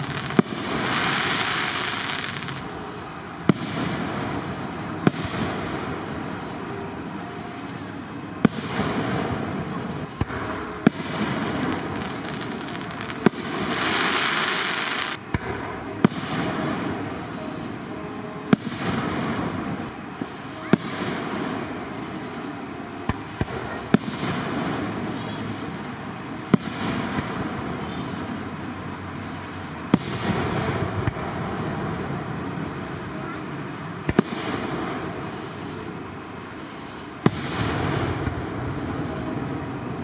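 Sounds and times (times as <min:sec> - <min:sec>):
small fireworks pops: 0:00.0 - 0:02.8, 0:03.4 - 0:06.2, 0:08.4 - 0:17.3, 0:23.0 - 0:25.8, 0:29.9 - 0:31.9, 0:34.0 - 0:35.6, 0:37.2 - 0:39.3
fireworks bangs with echo: 0:00.0 - 0:28.5, 0:29.2 - 0:36.0, 0:37.0 - 0:40.0.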